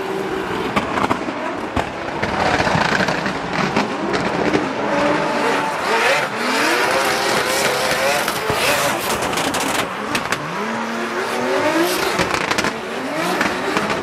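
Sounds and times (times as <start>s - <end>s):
engines revving hard: 0.0s - 14.0s.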